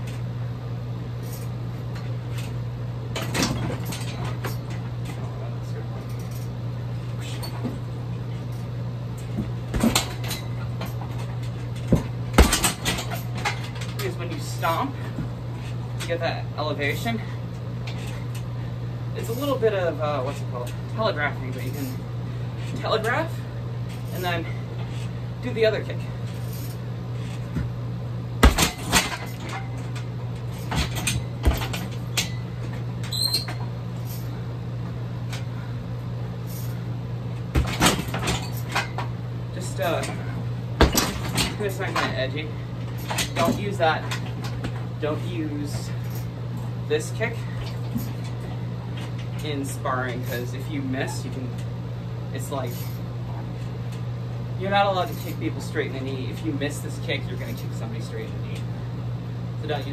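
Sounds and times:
steady low hum: 0.0s - 59.9s
kick hitting punching bag: 9.4s - 10.2s, 11.9s - 12.9s, 28.4s - 29.2s, 30.7s - 31.9s, 40.8s - 41.4s.

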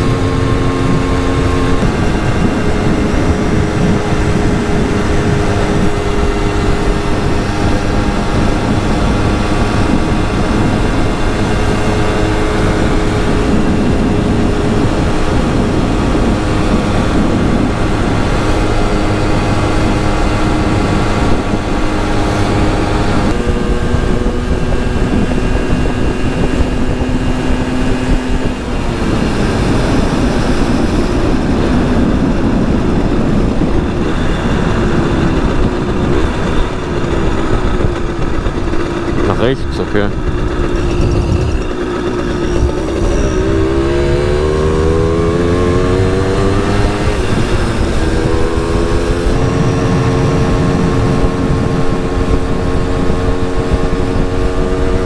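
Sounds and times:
moped engine running: 0.0s - 55.0s
rushing noise: 28.4s - 52.5s.

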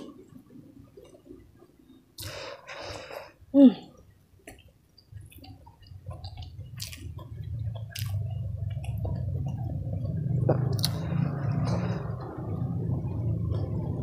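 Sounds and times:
person chewing wetly: 3.9s - 13.9s
low steady rumble: 5.2s - 14.0s.

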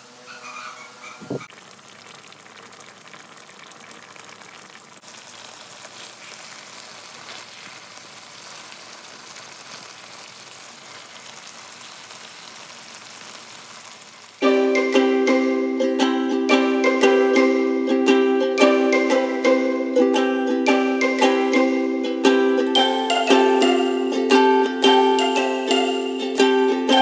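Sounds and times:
food sizzling in a wok: 0.9s - 14.6s.

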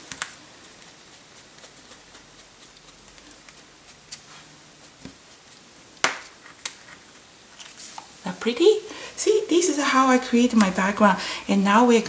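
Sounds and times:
sponge dabbing and rubbing on paper: 0.0s - 8.0s.

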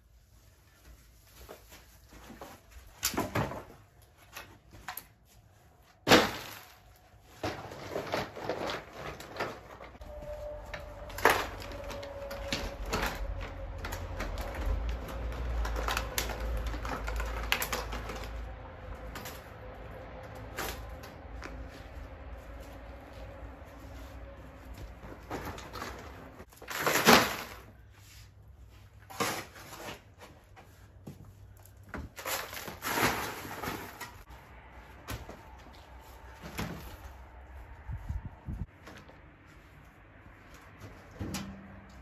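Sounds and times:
branches knocking and snapping: 6.0s - 9.9s, 10.8s - 21.7s, 25.3s - 27.8s.

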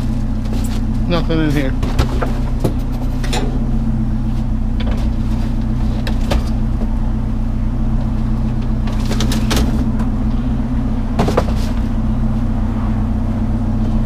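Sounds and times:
vehicle engine humming: 0.0s - 14.0s
sharp knocks and clatters: 1.8s - 3.6s, 11.1s - 12.0s.

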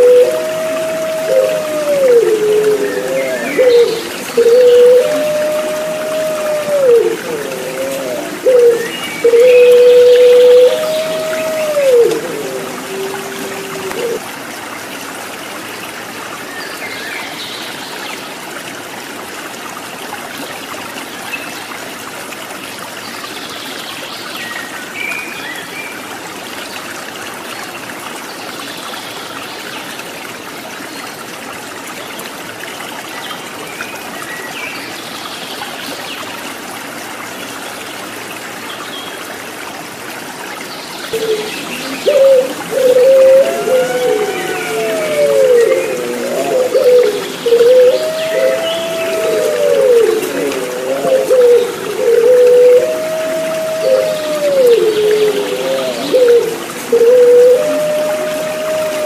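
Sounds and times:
dove cooing: 0.0s - 14.2s, 41.2s - 59.0s
stream babbling: 0.0s - 59.0s.

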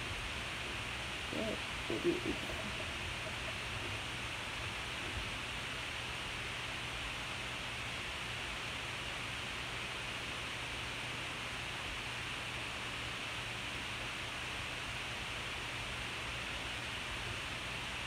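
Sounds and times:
faint low hum: 0.0s - 8.5s
steady recording hiss: 0.0s - 18.0s.

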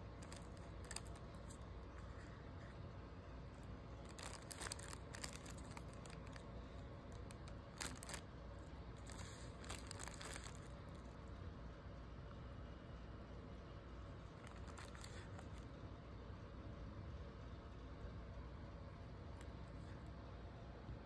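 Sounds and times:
plastic crinkling and rustling: 0.0s - 2.8s, 3.4s - 8.4s, 9.0s - 11.2s, 14.3s - 15.7s.

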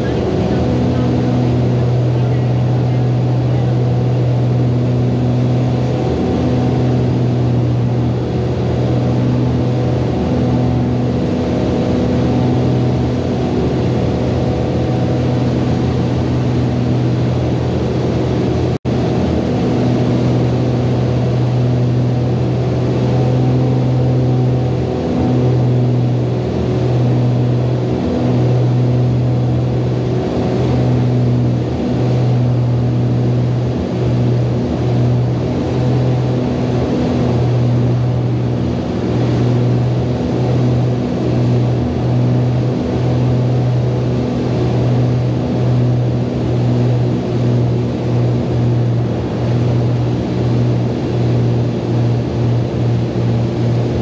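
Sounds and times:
aircraft engines droning in cabin: 0.0s - 54.0s.

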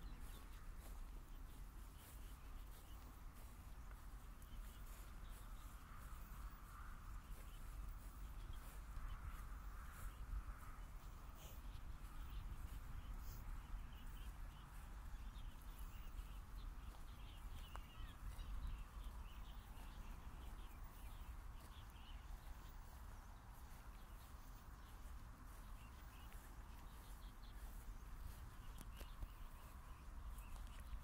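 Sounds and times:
birds chirping: 0.0s - 31.0s
footsteps on grass: 0.0s - 31.0s.

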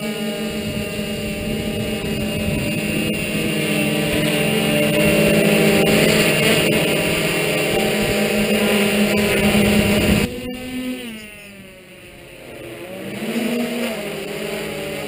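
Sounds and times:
drone propellers buzzing: 0.0s - 15.0s.

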